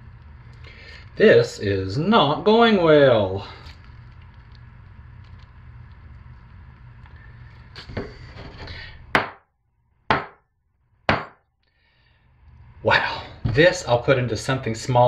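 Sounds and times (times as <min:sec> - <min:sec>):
mold thumping on stone countertop: 0:09.1 - 0:09.4, 0:10.1 - 0:10.4, 0:11.1 - 0:11.4.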